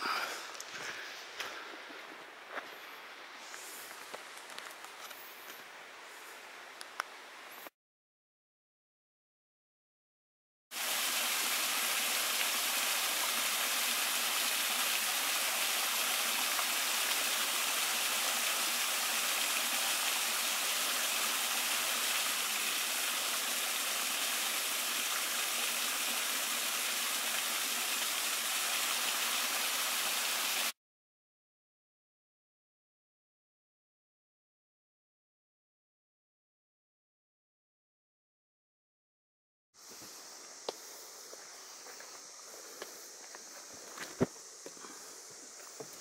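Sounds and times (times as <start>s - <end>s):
small waterfall splashing into pool: 10.7s - 30.8s.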